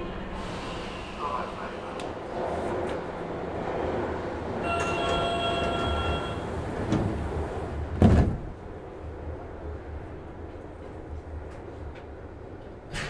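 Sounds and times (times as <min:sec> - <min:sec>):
train low hum: 0:00.0 - 0:13.0
sliding doors banging shut: 0:04.9 - 0:08.6.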